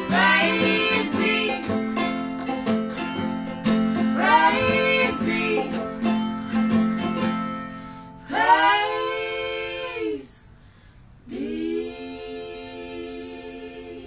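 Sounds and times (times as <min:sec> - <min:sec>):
women singing in harmony: 0:00.0 - 0:01.8, 0:04.0 - 0:06.1, 0:08.2 - 0:10.6, 0:11.2 - 0:14.0
plucked string folk music: 0:00.0 - 0:08.3.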